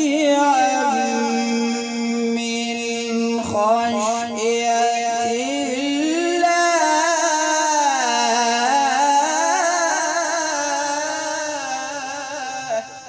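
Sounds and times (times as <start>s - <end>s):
man reciting melodically: 0.0s - 13.0s.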